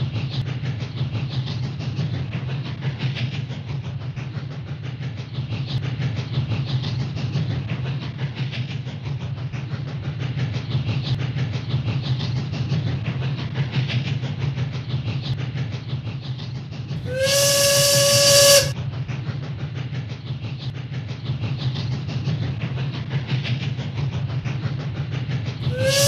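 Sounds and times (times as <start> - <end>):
steam train rhythmic rumble: 0.0 - 26.0
steam whistle blowing: 17.0 - 18.8, 25.6 - 26.0.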